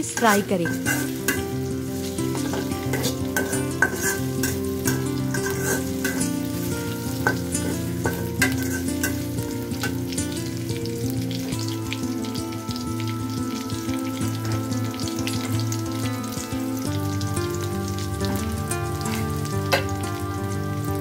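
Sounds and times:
metal spatula scraping a wok: 0:00.0 - 0:10.1
onions sizzling in oil: 0:00.0 - 0:21.0
soft background music: 0:00.0 - 0:21.0.

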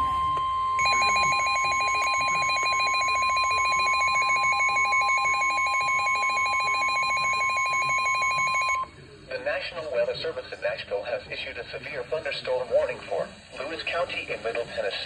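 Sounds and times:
steady alarm tone: 0:00.0 - 0:08.9
rapidly pulsing beeping alert: 0:00.8 - 0:08.9.

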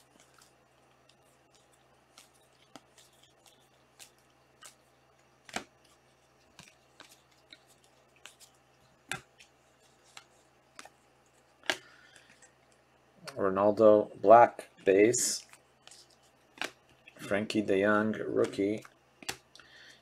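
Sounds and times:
trading cards clicking and snapping: 0:05.4 - 0:07.6, 0:11.6 - 0:12.4, 0:15.8 - 0:17.2, 0:18.3 - 0:19.6.

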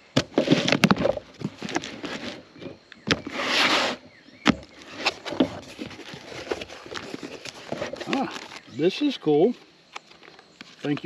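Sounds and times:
tape peeling: 0:04.7 - 0:08.7.

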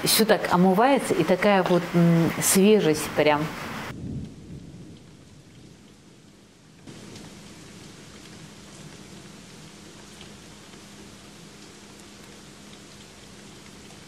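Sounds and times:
rain falling: 0:00.0 - 0:14.0
raindrop ticks: 0:03.9 - 0:14.0.

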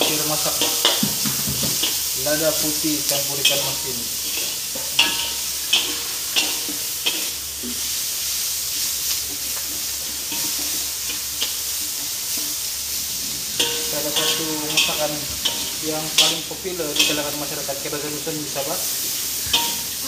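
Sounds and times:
spatula scraping and clicking on pan: 0:00.0 - 0:02.2, 0:03.4 - 0:07.8, 0:08.7 - 0:12.6
food sizzling in a wok: 0:00.0 - 0:20.0.

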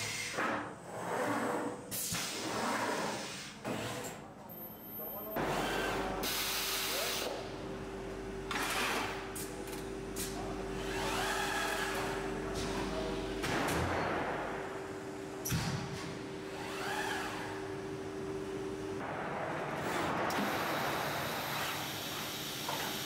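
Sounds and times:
steady electrical hum: 0:04.6 - 0:23.0.

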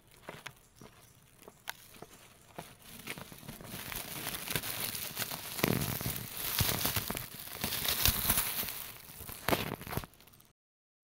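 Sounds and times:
microphone handling rustling: 0:02.6 - 0:10.2.

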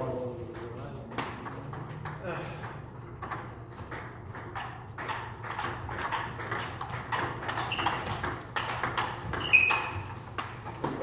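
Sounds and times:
table tennis ball clicking: 0:03.0 - 0:11.0.

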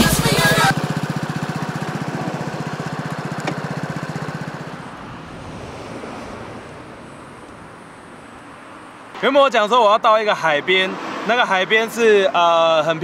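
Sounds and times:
scooter engine idling: 0:00.0 - 0:05.2.

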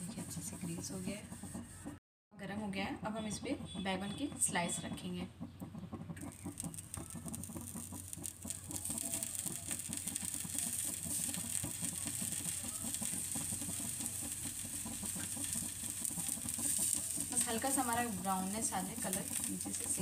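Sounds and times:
low irregular chatter: 0:06.2 - 0:20.0
slices sizzling in oil: 0:06.2 - 0:20.0.

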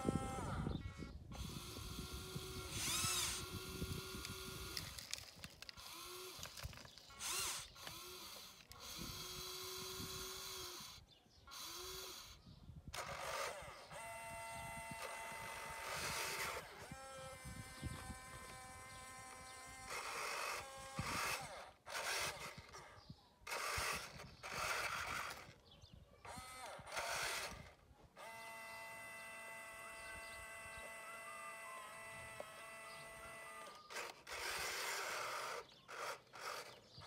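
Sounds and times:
electric motors whining: 0:00.0 - 0:25.6, 0:26.2 - 0:37.0.

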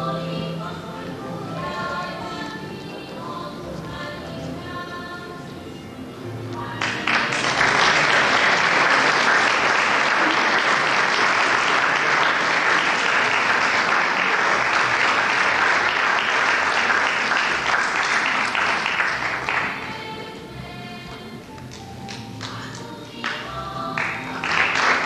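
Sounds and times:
audience applauding: 0:06.8 - 0:19.9, 0:24.0 - 0:25.0.

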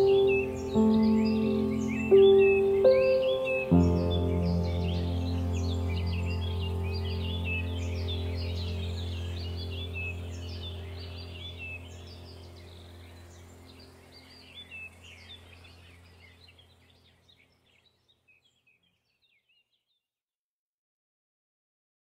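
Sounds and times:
steady low hum: 0:00.0 - 0:17.4
small birds chirping: 0:00.0 - 0:20.0.

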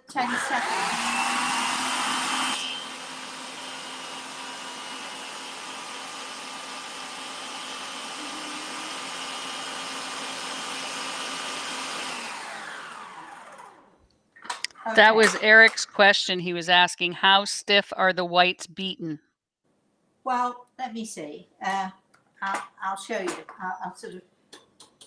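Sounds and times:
electric stand mixer whirring: 0:00.1 - 0:13.9.

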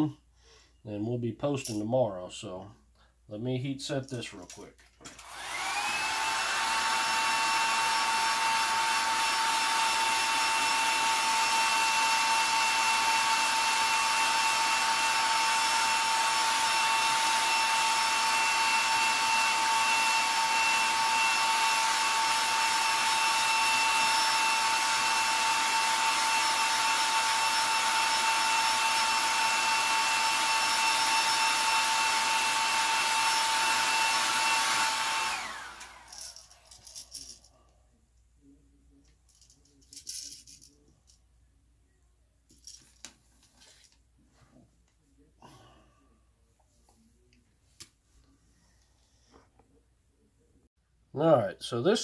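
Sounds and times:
hair dryer blowing: 0:05.0 - 0:36.7.

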